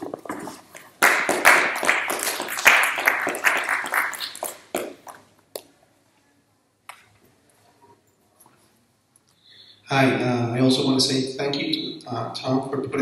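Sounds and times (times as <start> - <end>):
audience applauding: 1.0 - 5.2.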